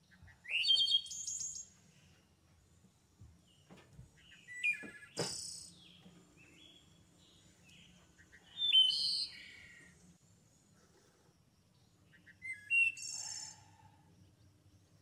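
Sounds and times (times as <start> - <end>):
small birds chirping and whistling: 0.1 - 1.8, 4.2 - 10.0, 12.1 - 13.8.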